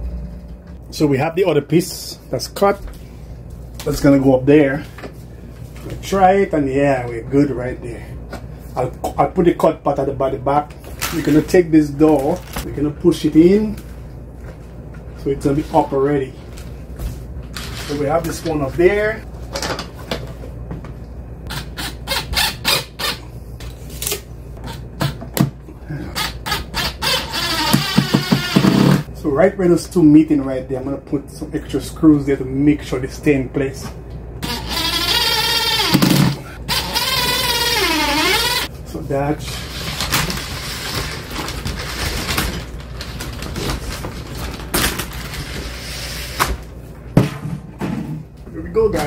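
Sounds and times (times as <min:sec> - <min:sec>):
cordless drill: 0:26.2 - 0:29.0, 0:34.4 - 0:38.7.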